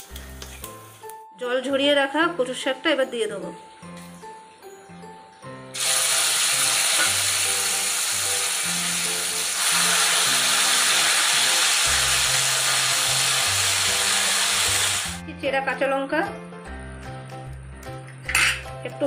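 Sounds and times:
leaves sizzling in hot oil: 5.7s - 15.2s.

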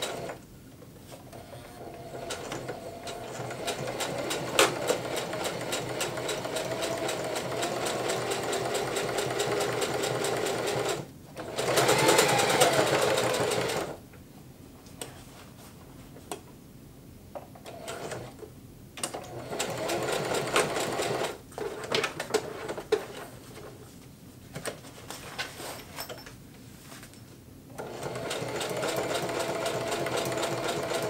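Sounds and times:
electric sewing machine stitching: 0.0s - 0.4s, 1.3s - 14.0s, 19.2s - 21.4s, 27.8s - 31.0s.

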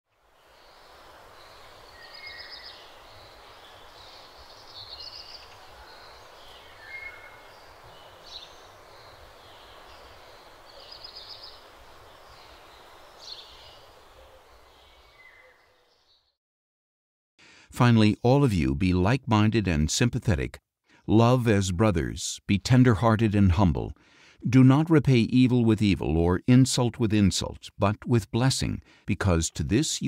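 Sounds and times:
outdoor background hiss: 0.1s - 16.3s, 17.7s - 30.0s
small birds chirping: 0.2s - 16.4s.

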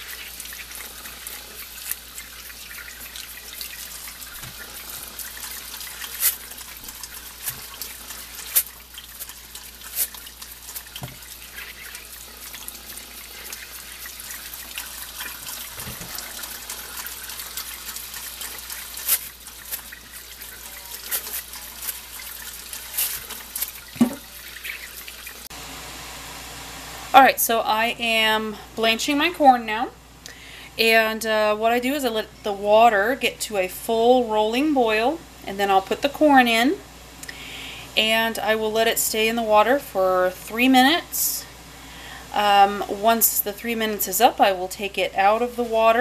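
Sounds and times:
brush scrubbing corn: 0.0s - 25.5s
water splashing and dripping: 0.0s - 25.5s.

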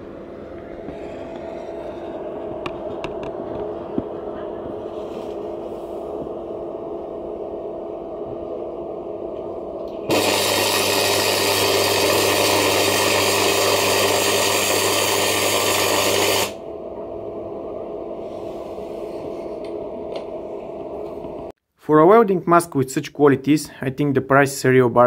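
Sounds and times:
machine hum: 0.0s - 21.6s
welding arc crackling: 9.8s - 16.6s.

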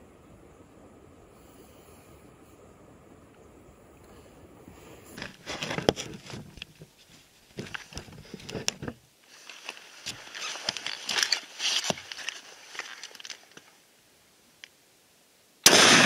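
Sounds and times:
gear crunching and rustling: 5.1s - 13.7s.

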